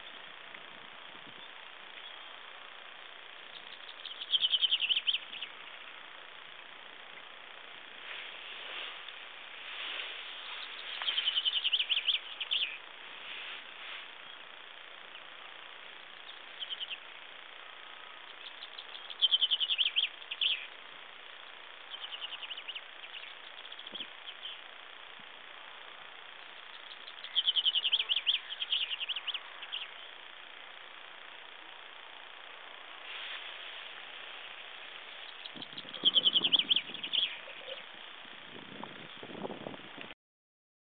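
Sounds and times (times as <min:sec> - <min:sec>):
chaffinch song: 0:00.0 - 0:40.1
faint bird phrases: 0:26.8 - 0:30.1, 0:35.3 - 0:38.0.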